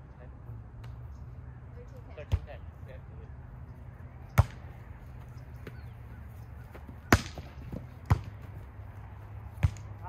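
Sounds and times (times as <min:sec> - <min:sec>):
volleyball being struck: 0:07.0 - 0:08.4.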